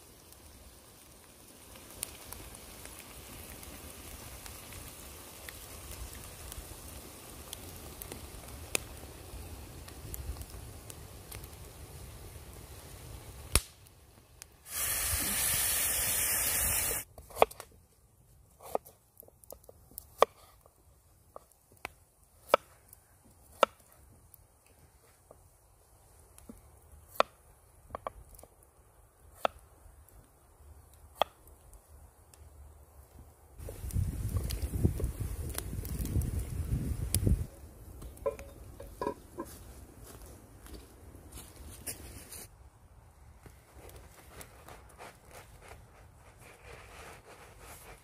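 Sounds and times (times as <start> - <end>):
sharp pops from fire: 0.0 - 17.7, 18.5 - 25.6, 26.2 - 32.5, 33.6 - 40.8
wood fire crackling: 0.0 - 48.0
loud steady hiss: 14.6 - 17.1.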